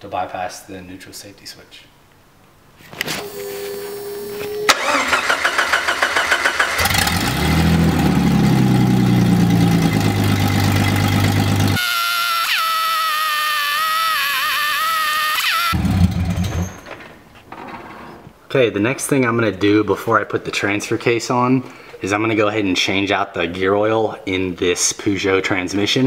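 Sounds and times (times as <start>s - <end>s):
wavering whine: 3.2s - 5.0s
car engine revving and running: 4.7s - 11.8s, 15.7s - 16.5s
starter cranking engine: 4.7s - 11.8s.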